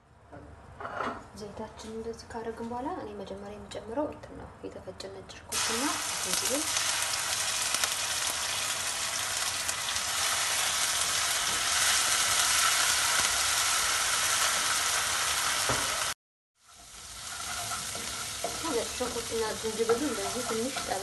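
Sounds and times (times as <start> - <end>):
garlic sizzling in hot oil: 5.5 - 21.0
wooden spatula stirring: 17.3 - 21.0.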